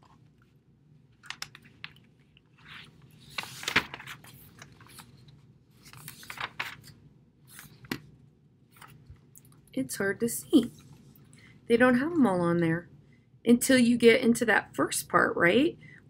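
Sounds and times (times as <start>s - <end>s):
clicks taps and crinkling rustles: 1.1s - 6.9s.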